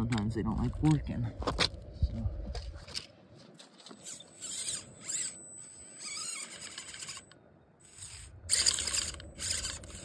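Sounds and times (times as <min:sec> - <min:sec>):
electric motor whining: 0:04.0 - 0:10.0.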